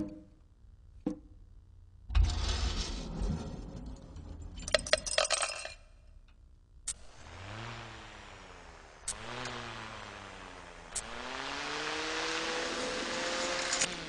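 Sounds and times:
low rumble of rolling on wood: 2.1s - 5.2s
metal parts clinking and rattling: 4.5s - 6.0s.

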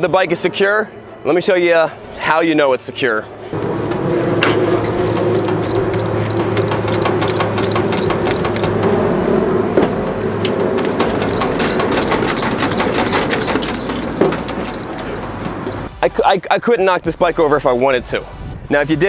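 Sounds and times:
steady low hum: 0.0s - 19.0s
knocks creaks and rattles: 3.6s - 15.9s.

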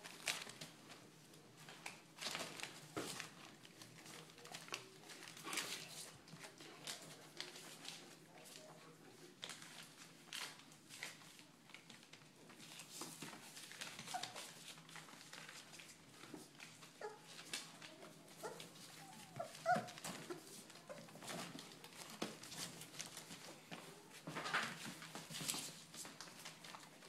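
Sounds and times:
puppies scuffling: 0.0s - 27.0s
puppy whimpers and yips: 18.4s - 21.0s.

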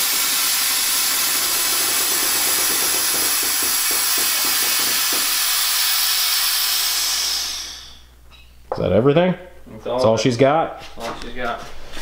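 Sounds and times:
compressed air hissing: 0.0s - 8.1s.

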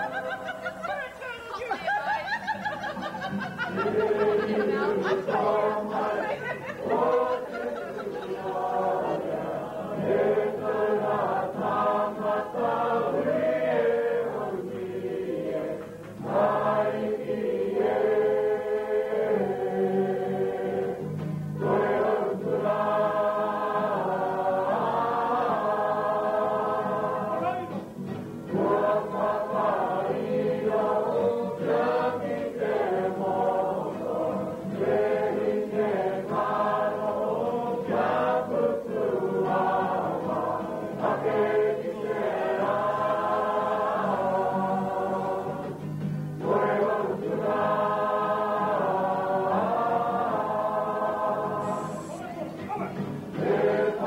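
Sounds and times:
group of voices singing: 1.8s - 54.0s.

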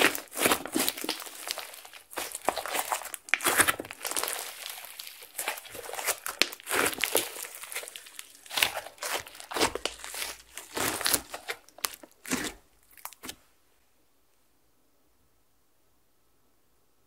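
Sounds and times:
slime squeezed with sticky pops: 0.0s - 13.4s.

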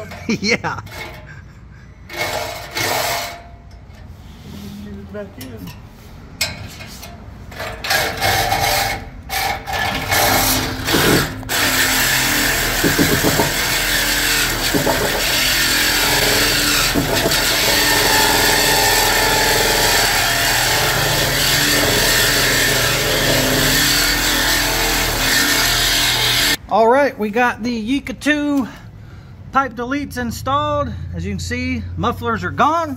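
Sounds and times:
reciprocating saw cutting metal pipe: 2.1s - 3.6s, 7.5s - 26.6s.

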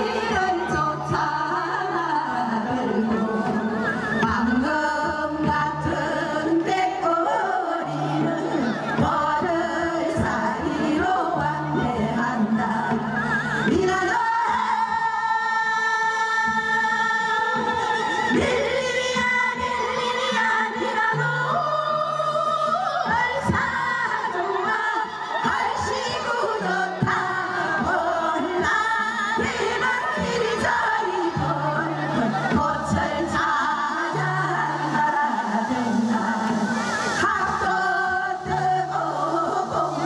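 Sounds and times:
women's chorus singing folk song: 0.0s - 40.0s.

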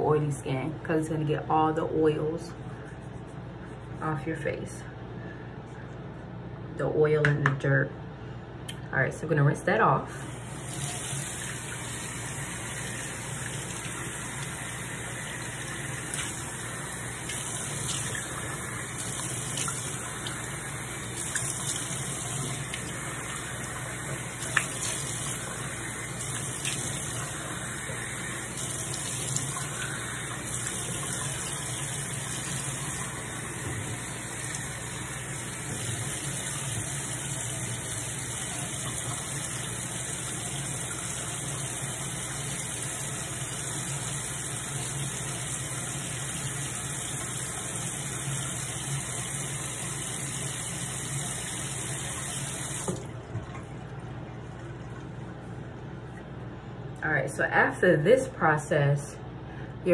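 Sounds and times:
tap running: 10.4s - 56.3s.

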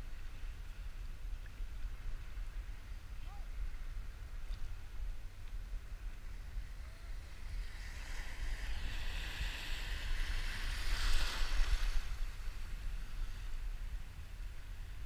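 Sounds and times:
wind rumbling on microphone: 0.0s - 15.0s
ocean wave breaking: 6.3s - 14.3s.

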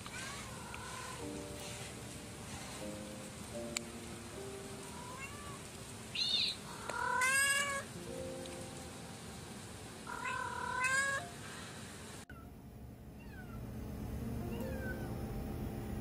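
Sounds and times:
kitten meowing: 0.0s - 0.8s, 4.9s - 5.6s, 6.2s - 7.8s, 10.1s - 11.3s, 13.2s - 13.6s, 14.5s - 15.2s
soft background music: 0.0s - 11.4s, 12.6s - 16.0s.

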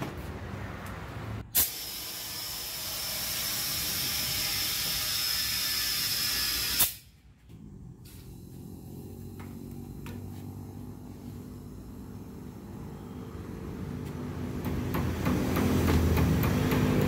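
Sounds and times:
compressed air hissing into tyre: 1.5s - 7.2s, 8.0s - 13.1s.

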